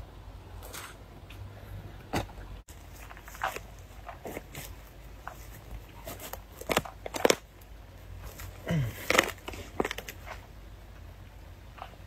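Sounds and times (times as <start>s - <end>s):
dry leaf litter crackling: 2.7s - 10.4s.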